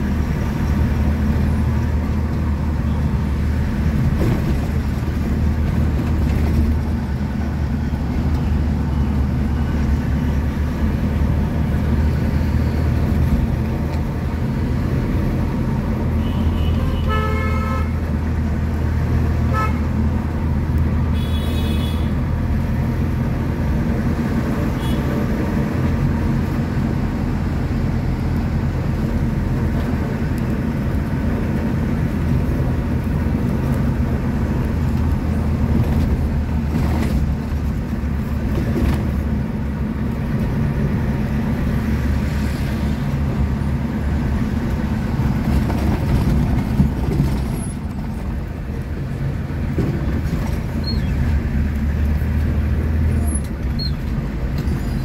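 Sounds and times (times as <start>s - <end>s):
vehicle engine and road noise: 0.0s - 55.0s
vehicle horn honking: 16.2s - 18.0s, 19.5s - 19.8s, 21.2s - 22.1s.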